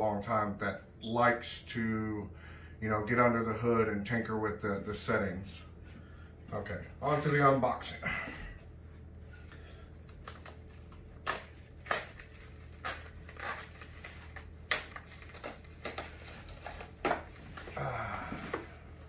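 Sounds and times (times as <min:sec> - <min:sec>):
steady low hum: 0:00.0 - 0:19.0
plastic packaging crinkling: 0:09.9 - 0:19.0.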